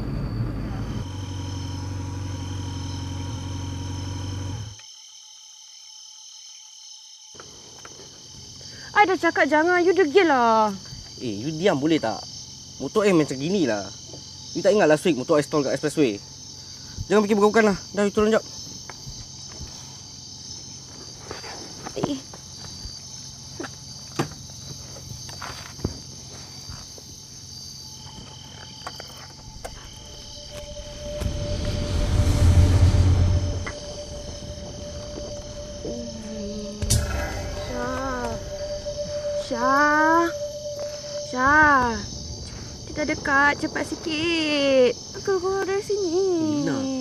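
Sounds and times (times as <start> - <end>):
crickets chirping: 0.0 - 47.0
loud low rumble: 29.9 - 44.2.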